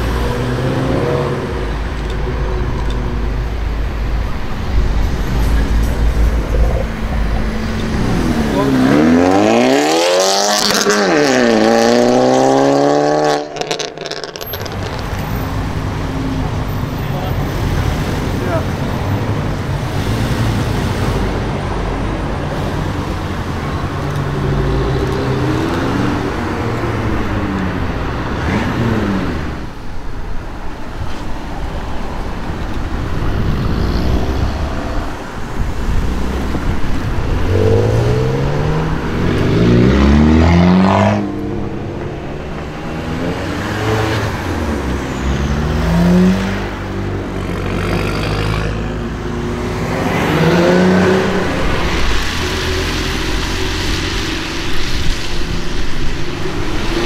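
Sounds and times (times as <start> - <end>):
cars accelerating away: 0.0 - 3.4, 4.4 - 29.7, 32.8 - 57.0.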